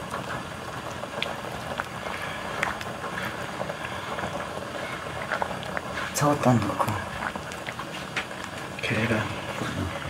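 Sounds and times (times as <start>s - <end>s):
sauce simmering with hiss and pops: 0.0s - 10.0s.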